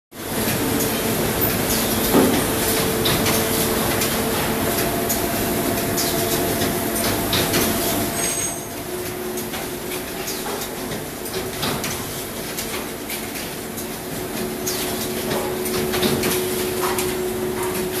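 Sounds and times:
machine hum: 0:00.2 - 0:11.5
machine clicks and knocks: 0:09.1 - 0:13.9, 0:14.7 - 0:17.9.

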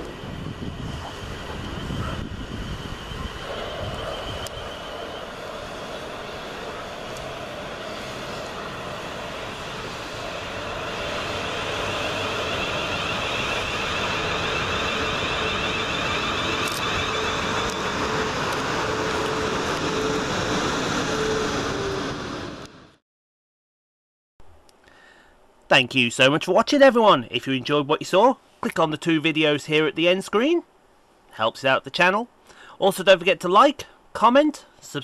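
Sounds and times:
train wheels rumbling on rails: 0:00.0 - 0:22.8.

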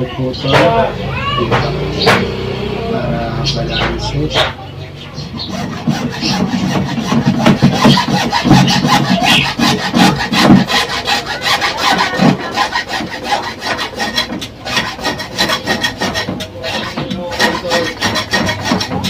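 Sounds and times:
hacksaw sawing through plastic pipe: 0:05.2 - 0:19.0.

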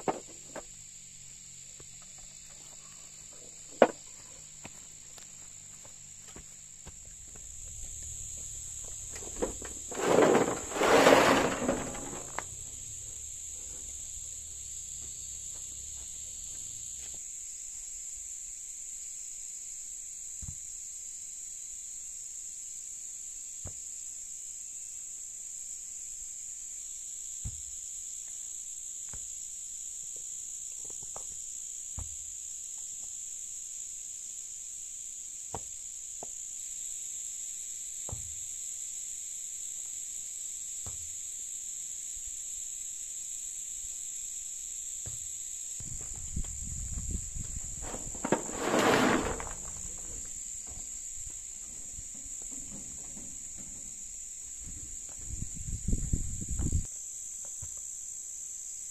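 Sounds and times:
stones knocking set down: 0:00.0 - 0:00.7, 0:03.6 - 0:04.8, 0:06.2 - 0:14.0, 0:45.8 - 0:55.2
rocks tumbling from wheelbarrow: 0:00.0 - 0:00.8, 0:01.8 - 0:17.2, 0:45.8 - 0:56.9.

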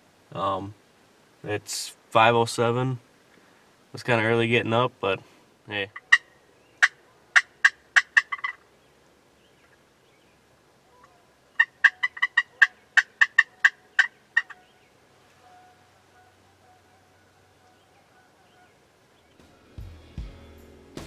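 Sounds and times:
turkey yelping: 0:05.9 - 0:08.8, 0:10.8 - 0:19.4.

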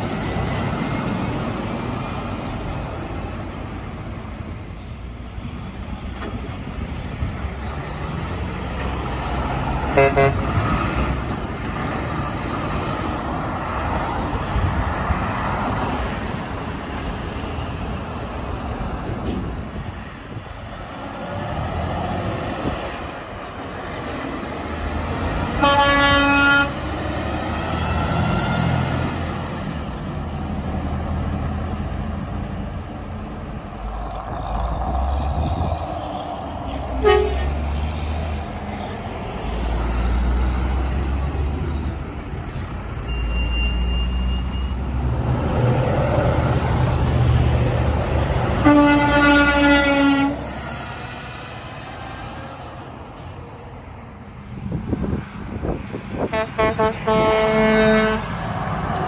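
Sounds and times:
truck engines passing: 0:00.0 - 0:59.0
truck air horn blasts: 0:09.9 - 0:10.6, 0:25.5 - 0:26.9, 0:37.0 - 0:37.6, 0:48.6 - 0:50.6, 0:56.3 - 0:58.3.

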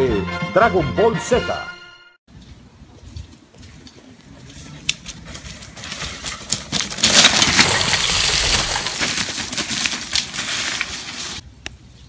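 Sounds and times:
bike tyres crunching over bark and leaves: 0:02.4 - 0:11.4.

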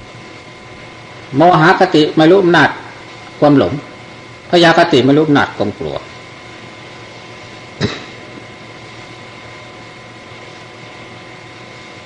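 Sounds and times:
faint hum tones: 0:00.0 - 0:12.0.

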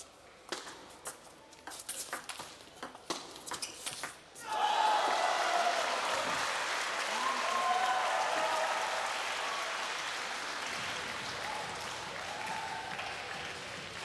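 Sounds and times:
crowd applauding: 0:04.9 - 0:14.0.

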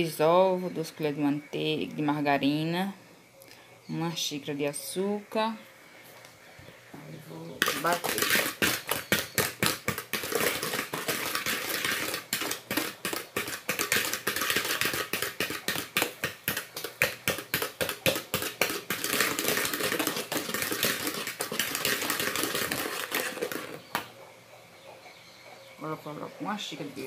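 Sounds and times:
utensil clacking against mixing bowl: 0:07.6 - 0:24.1.

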